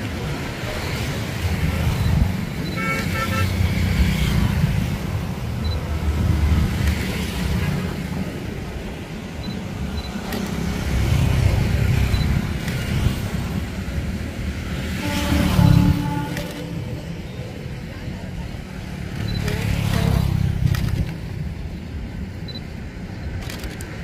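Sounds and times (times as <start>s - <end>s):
road traffic rumble: 0.0s - 24.0s
vehicle horn: 2.7s - 3.6s, 14.9s - 17.1s.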